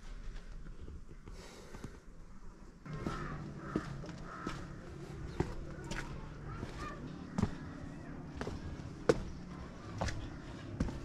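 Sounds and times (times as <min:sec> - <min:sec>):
footsteps walking: 0:02.8 - 0:11.0.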